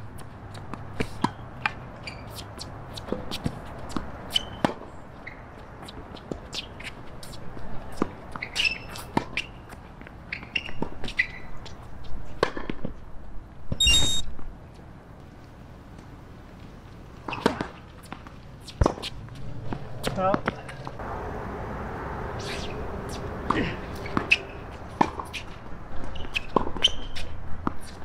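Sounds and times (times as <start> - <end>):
shoe squeaks on court: 2.0 - 3.6, 4.3 - 7.5, 8.4 - 11.8, 13.8 - 14.3, 17.3 - 17.8, 24.0 - 28.0
racket hitting ball: 19.7 - 27.1
loud rush of noise: 20.9 - 25.8.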